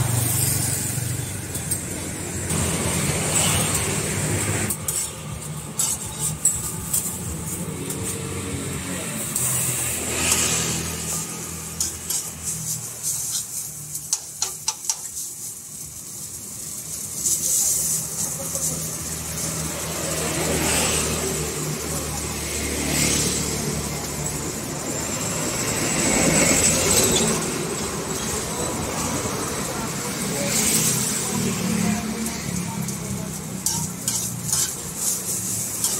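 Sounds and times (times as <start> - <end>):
street traffic: 0.0 - 35.9
vehicles passing: 0.0 - 35.9
metal tongs clicking on a pan: 14.0 - 15.2, 32.8 - 35.9.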